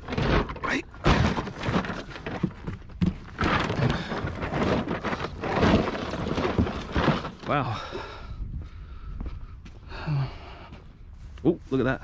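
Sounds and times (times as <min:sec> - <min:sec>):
cardboard box scraping: 0:00.0 - 0:07.6.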